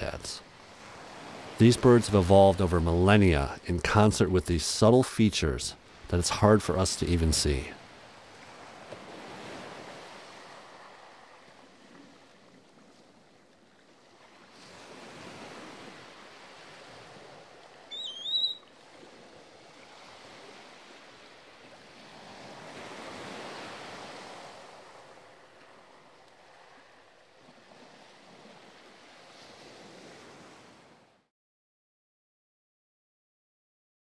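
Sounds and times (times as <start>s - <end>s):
surf washing on beach: 0.0s - 31.2s
wavering whistled bird call: 17.9s - 18.7s.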